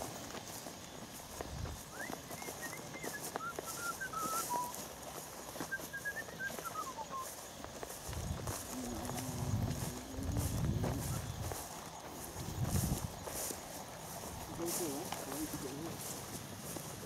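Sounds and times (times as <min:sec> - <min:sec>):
person whistling a tune: 0:01.9 - 0:04.8, 0:05.7 - 0:07.3.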